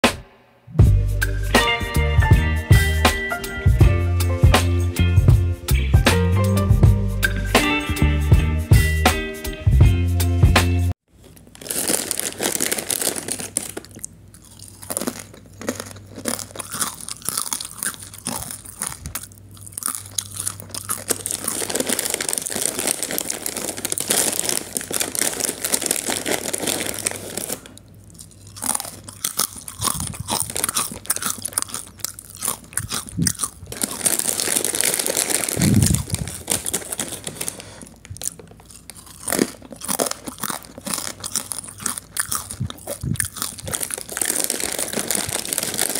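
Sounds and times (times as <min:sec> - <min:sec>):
crunching potato chips: 0:11.1 - 0:45.9.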